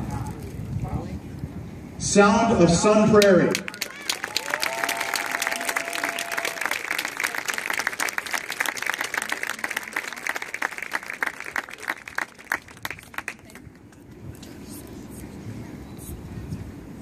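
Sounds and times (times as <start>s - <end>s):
crowd applauding: 3.2s - 13.9s
long held cheer: 3.6s - 12.6s.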